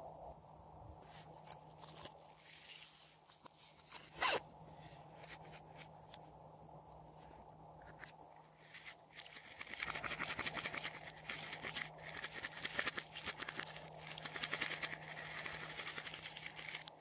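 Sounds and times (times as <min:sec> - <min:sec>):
rasping zip-like scrape: 0:03.9 - 0:04.4.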